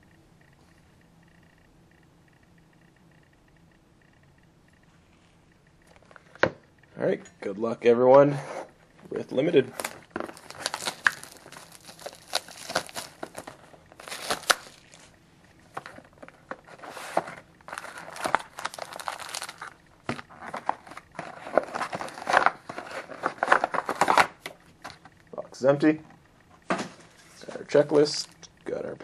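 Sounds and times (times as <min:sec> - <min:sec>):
plastic wrapping crinkling and tearing: 0:09.6 - 0:15.1, 0:16.7 - 0:24.4.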